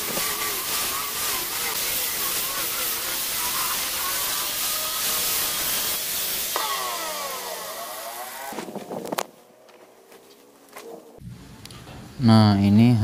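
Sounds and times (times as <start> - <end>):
electric planer shaving wood: 0.0 - 8.7
motor whine spinning down: 6.5 - 8.7.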